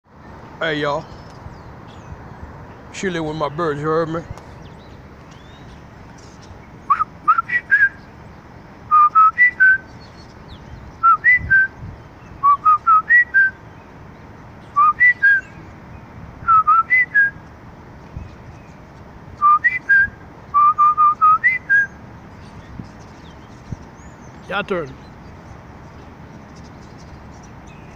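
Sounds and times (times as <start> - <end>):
person whistling: 6.9 - 8.0, 8.9 - 9.8, 11.0 - 11.7, 12.4 - 13.6, 16.5 - 17.3, 19.4 - 21.9.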